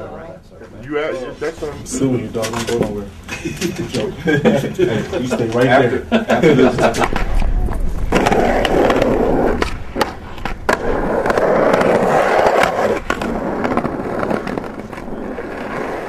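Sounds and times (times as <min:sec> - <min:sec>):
skateboard wheels rolling on concrete: 0:01.4 - 0:16.0
skateboard clacking on ground: 0:07.0 - 0:16.0.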